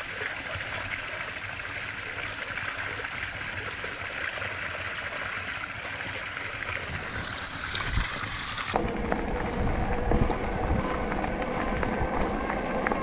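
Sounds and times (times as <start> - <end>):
electric bike motor whine: 8.7 - 13.0.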